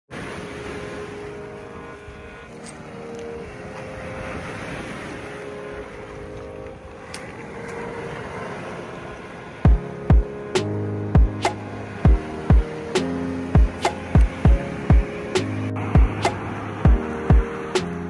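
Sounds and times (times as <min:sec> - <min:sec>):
surf washing over pebbles: 0:00.1 - 0:18.0.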